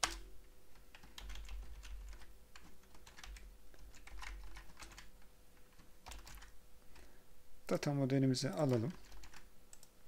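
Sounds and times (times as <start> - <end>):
typing on a keyboard: 0.0 - 5.1, 5.7 - 7.1, 8.6 - 9.9
steady low hum: 0.0 - 10.0.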